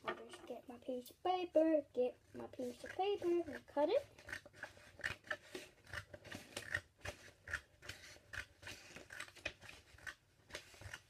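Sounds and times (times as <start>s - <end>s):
scissors cutting paper: 2.6s - 11.0s.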